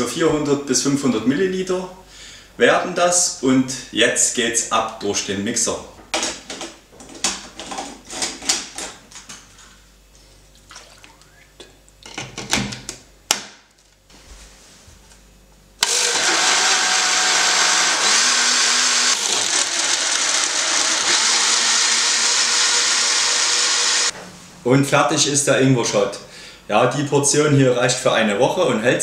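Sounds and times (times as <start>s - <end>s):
blender motor running: 15.8s - 24.2s.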